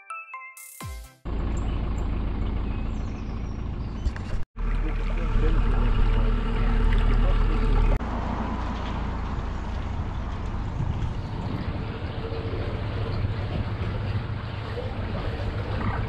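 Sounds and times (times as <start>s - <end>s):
boat engine humming: 1.3s - 16.0s
water noise: 4.6s - 16.0s
wind noise: 9.4s - 16.0s.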